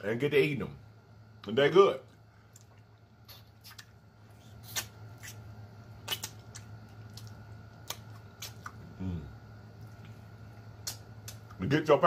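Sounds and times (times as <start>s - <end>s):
steady low hum: 0.0s - 12.0s
wet mouth clicks and smacks: 2.5s - 5.4s, 6.0s - 8.8s, 10.8s - 11.6s.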